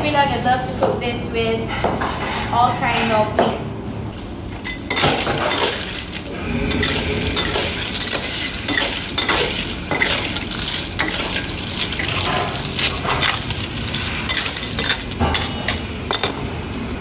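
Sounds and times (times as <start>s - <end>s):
food sizzling: 4.2s - 17.0s
ladle scraping metal wok: 4.6s - 16.4s.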